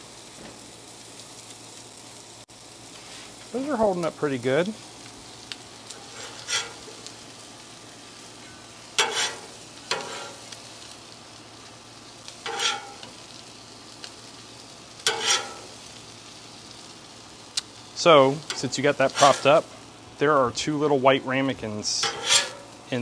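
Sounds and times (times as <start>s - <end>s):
tortillas sizzling on griddle: 0.0s - 23.0s
metal spatula scraping steel: 6.0s - 7.0s, 9.0s - 10.4s, 12.4s - 13.1s, 15.0s - 15.8s, 18.5s - 19.6s, 21.9s - 22.7s.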